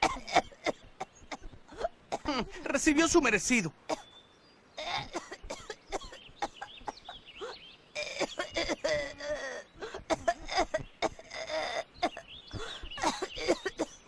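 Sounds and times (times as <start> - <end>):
boy sobbing and whimpering: 0.1 - 2.7, 4.8 - 14.0.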